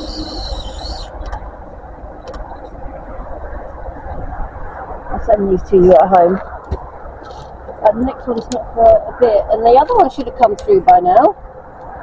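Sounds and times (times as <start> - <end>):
high chirping: 0.0 - 1.4
low outdoor rumble: 0.0 - 12.0.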